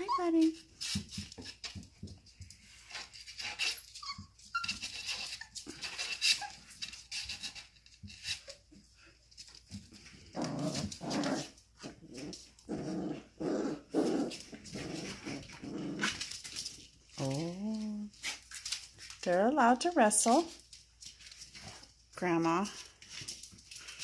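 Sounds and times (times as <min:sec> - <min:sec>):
puppies play growling: 0:00.0 - 0:19.2
puppies scuffling: 0:00.0 - 0:24.0.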